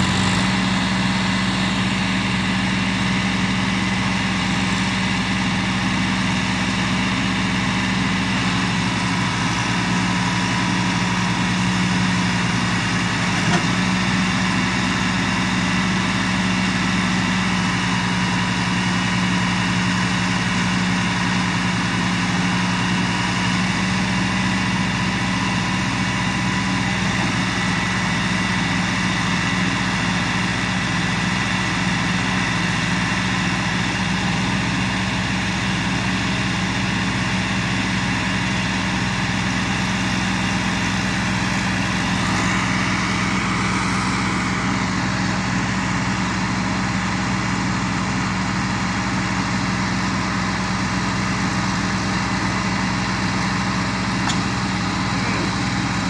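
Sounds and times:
tractor diesel engines under load: 0:00.0 - 0:56.0.

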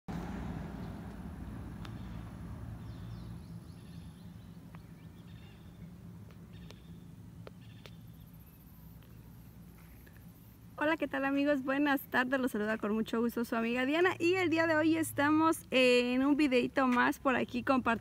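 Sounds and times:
vehicle rumbling past: 0:00.1 - 0:07.7
faint bird chirps: 0:01.8 - 0:10.5.

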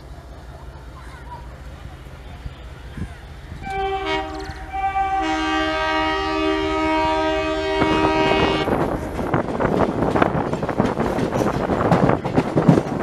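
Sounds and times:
train rumbling and clattering: 0:00.0 - 0:13.0
locomotive horn blasts: 0:03.6 - 0:08.8.

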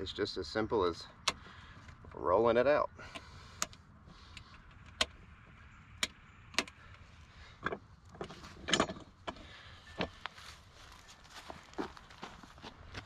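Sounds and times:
metal clicks and rattles: 0:07.6 - 0:09.4.

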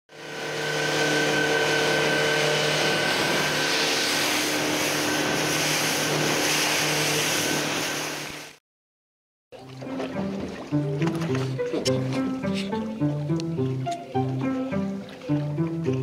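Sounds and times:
outboard motor running: 0:00.1 - 0:08.6, 0:09.6 - 0:16.0
spray and wind over hull: 0:00.2 - 0:08.5.

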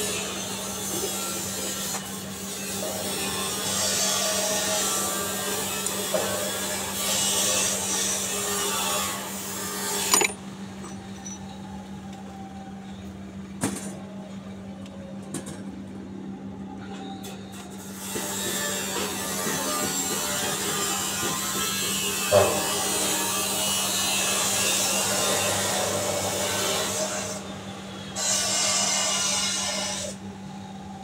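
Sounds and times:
metal parts scraping: 0:10.0 - 0:10.4.

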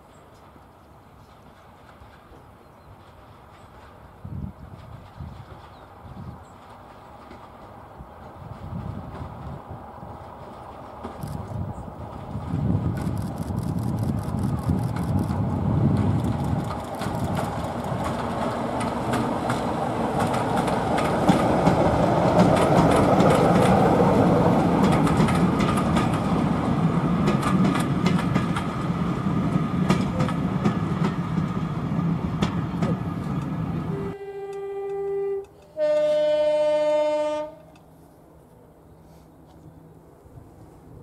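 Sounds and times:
diesel locomotive engine running: 0:00.4 - 0:35.8
wheel clicks over rail joints: 0:15.9 - 0:23.8
locomotive horn: 0:33.9 - 0:37.8.

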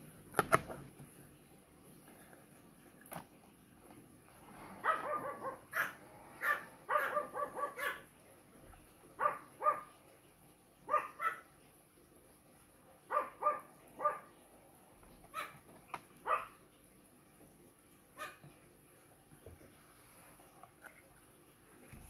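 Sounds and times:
dog barking high-pitched: 0:04.8 - 0:08.1, 0:09.2 - 0:10.0, 0:10.9 - 0:11.5, 0:13.1 - 0:14.4, 0:15.3 - 0:15.6, 0:16.2 - 0:16.6, 0:18.2 - 0:18.4.

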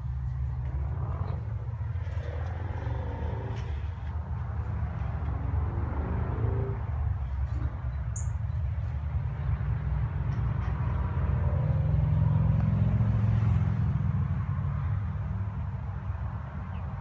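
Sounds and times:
steady low rumble: 0:00.0 - 0:10.3.

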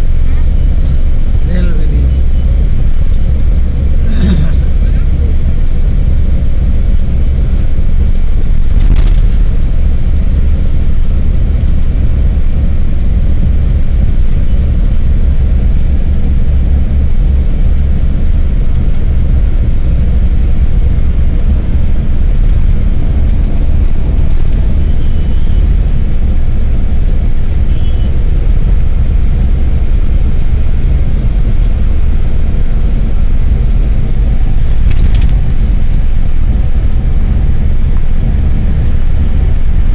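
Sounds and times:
car cabin road and engine noise: 0:00.0 - 0:39.9.

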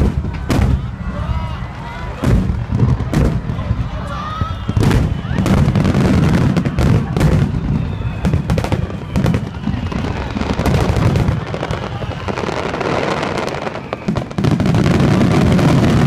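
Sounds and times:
fireworks bursts banging: 0:00.0 - 0:16.0.

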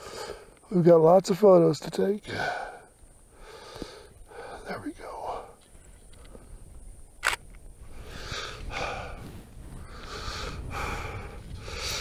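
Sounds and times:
man breathing hard: 0:00.0 - 0:00.6, 0:02.3 - 0:05.6, 0:07.9 - 0:12.0
sharp click: 0:07.2 - 0:07.6.

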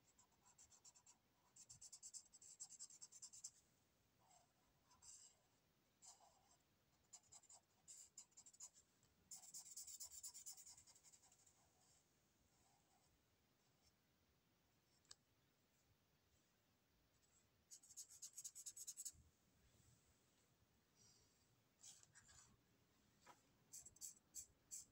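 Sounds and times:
marker scratching on paper: 0:00.1 - 0:03.5, 0:06.0 - 0:11.5, 0:17.7 - 0:19.1, 0:23.7 - 0:24.9.

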